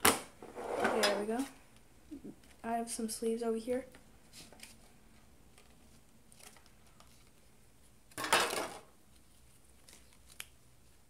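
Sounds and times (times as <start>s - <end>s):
plastic tray clattering on table: 8.2s - 8.9s.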